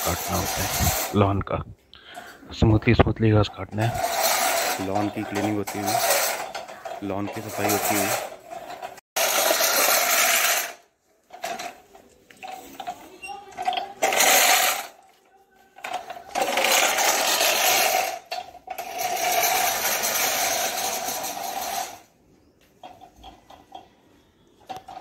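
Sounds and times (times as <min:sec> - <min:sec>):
reel mower cutting grass: 0:00.0 - 0:01.1, 0:03.9 - 0:06.5, 0:07.3 - 0:08.2, 0:09.2 - 0:10.8, 0:18.8 - 0:22.0.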